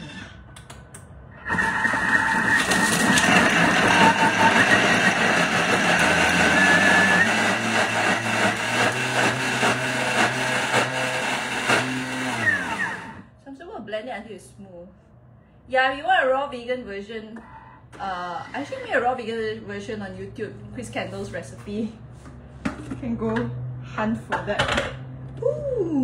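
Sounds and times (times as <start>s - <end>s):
food processor motor whine: 1.4s - 13.2s.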